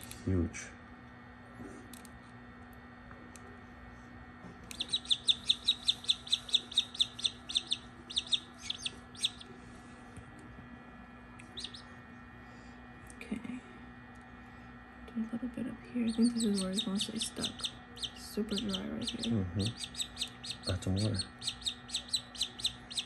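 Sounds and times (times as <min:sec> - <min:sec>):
chick peeping: 0:04.7 - 0:09.5, 0:11.4 - 0:11.9, 0:16.1 - 0:23.0.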